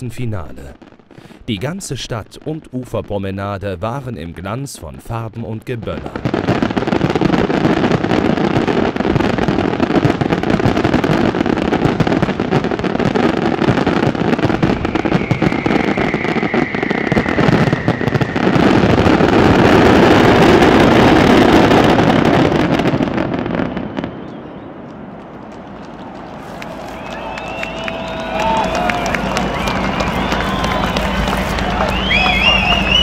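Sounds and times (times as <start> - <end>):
fireworks bangs and crackling: 0.0 - 33.0
faint falling whistle: 14.5 - 18.9, 23.6 - 24.9, 26.6 - 33.0.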